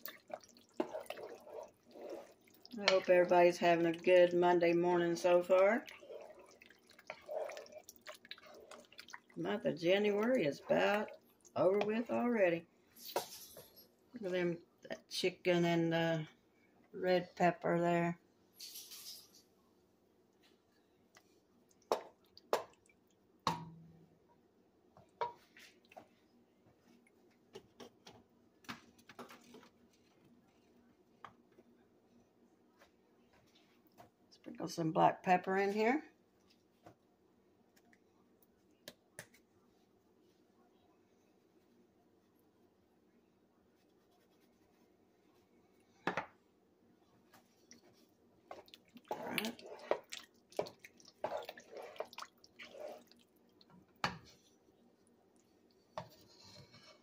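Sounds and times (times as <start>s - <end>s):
wet squishing of sauce: 0.0s - 4.3s, 5.5s - 9.4s, 11.0s - 11.6s, 20.3s - 23.4s, 25.3s - 27.9s, 47.1s - 56.0s
spoon scrape: 0.8s - 2.5s, 48.5s - 53.2s.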